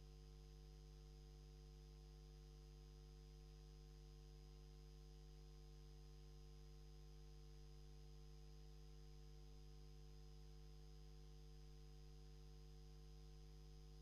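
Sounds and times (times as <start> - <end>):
faint low hum: 0.0 - 14.0.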